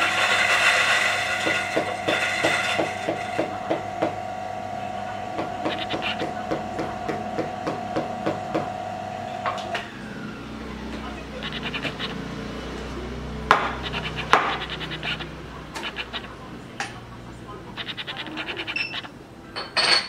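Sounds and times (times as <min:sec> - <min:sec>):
coffee grinder grinding: 0:00.0 - 0:03.6, 0:05.5 - 0:08.5
grinder motor humming: 0:00.0 - 0:19.1
regular taps: 0:13.5 - 0:17.0.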